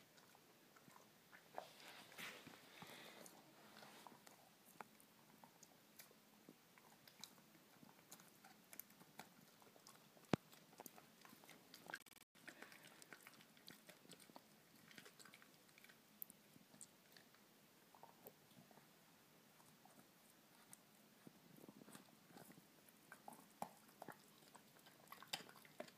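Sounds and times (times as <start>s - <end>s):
dog crunching a chew stick: 21.6s - 25.9s.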